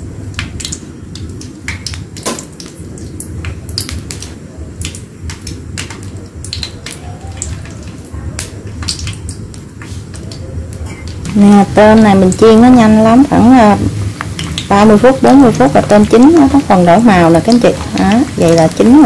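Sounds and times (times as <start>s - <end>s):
shrimp frying in hot oil: 0.0s - 19.0s
low steady rumble: 7.9s - 19.0s.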